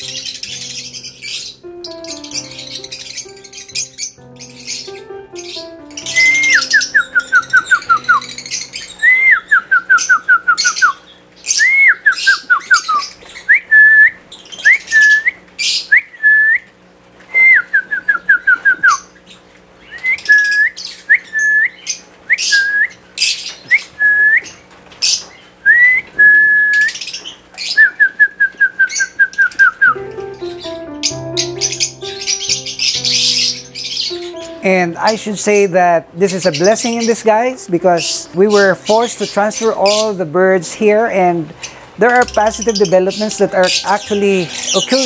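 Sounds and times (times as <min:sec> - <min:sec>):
lovebirds chattering: 0:00.0 - 0:13.5, 0:29.9 - 0:45.0.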